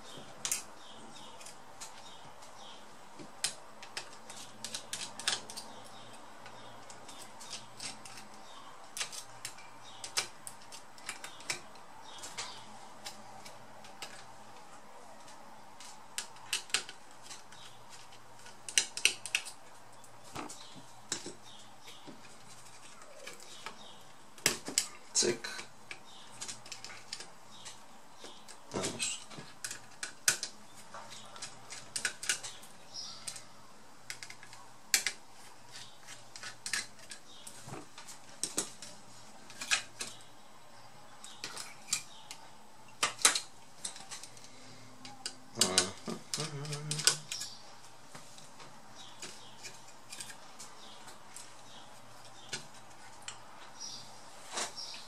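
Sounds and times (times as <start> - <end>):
small parts clicking and clattering: 3.2 - 40.3, 41.2 - 47.6.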